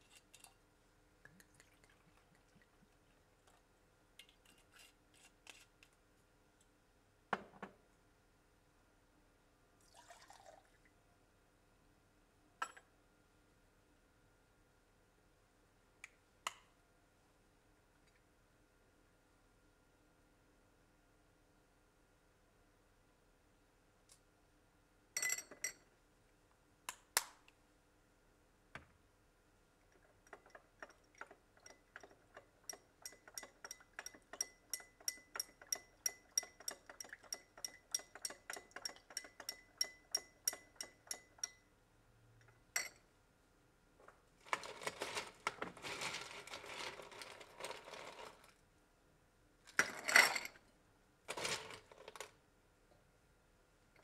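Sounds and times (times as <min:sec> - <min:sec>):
glassware clinking: 0:25.2 - 0:25.8, 0:42.8 - 0:43.0.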